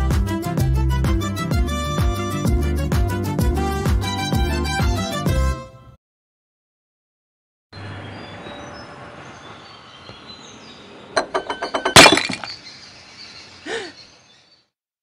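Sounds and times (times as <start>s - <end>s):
faint bird chirps: 7.8s - 14.7s
glass shattering: 11.2s - 12.6s.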